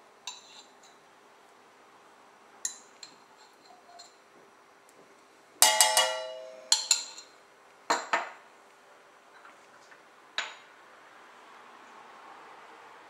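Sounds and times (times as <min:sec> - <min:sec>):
metal spoon clinking on steel cup: 0:05.6 - 0:07.4.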